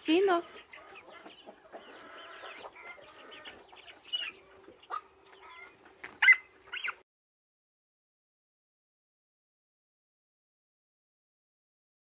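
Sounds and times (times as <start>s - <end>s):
chickens clucking: 0.0s - 7.0s
short sharp chicken calls: 0.8s - 7.0s.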